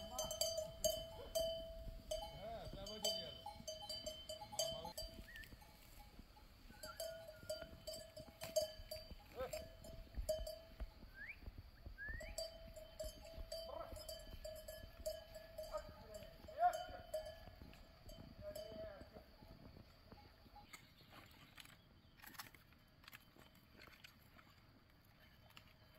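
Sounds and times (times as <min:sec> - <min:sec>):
sheep bells clanking: 0:00.0 - 0:11.3, 0:12.1 - 0:20.8.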